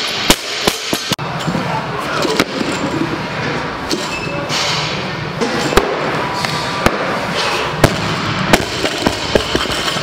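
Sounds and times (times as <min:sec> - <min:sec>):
gym background noise: 0:00.0 - 0:10.0.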